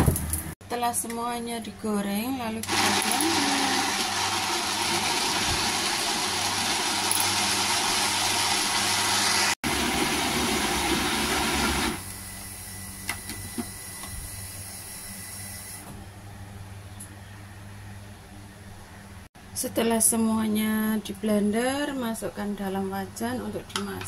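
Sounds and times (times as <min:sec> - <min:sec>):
electric blender grinding: 0:02.6 - 0:12.2.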